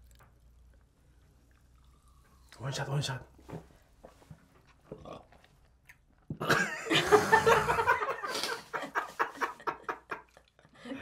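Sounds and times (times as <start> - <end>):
people laughing heartily: 6.4 - 10.4.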